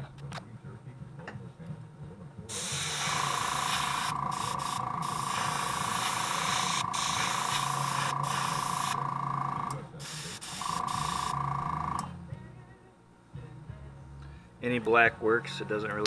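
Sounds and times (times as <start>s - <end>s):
airbrush spraying hiss: 2.5s - 9.0s, 10.0s - 11.4s
steady high tone: 2.5s - 12.1s.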